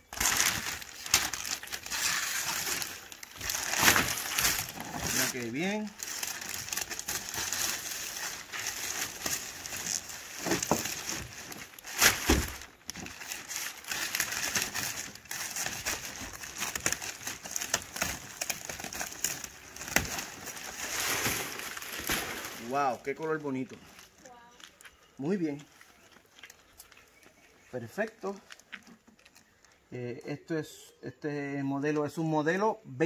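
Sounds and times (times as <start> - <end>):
plastic wrap crinkling: 0.0 - 24.7.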